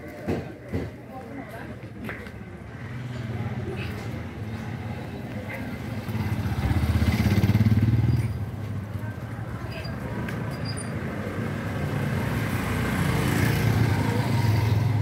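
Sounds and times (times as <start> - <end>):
street noise: 0.0 - 15.0
motorcycle passing: 2.6 - 9.2, 11.2 - 15.0.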